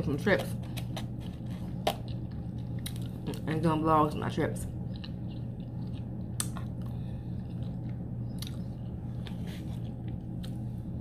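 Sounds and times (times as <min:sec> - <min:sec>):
steady low hum: 0:00.0 - 0:11.0
chewing soft food: 0:04.6 - 0:10.7
wet mouth clicks: 0:06.4 - 0:06.8.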